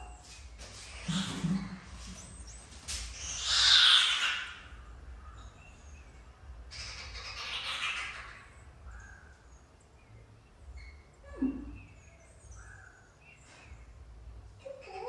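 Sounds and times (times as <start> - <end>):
small birds chirping faintly: 0.0 - 15.0
bird harsh squawking calls: 0.8 - 9.4.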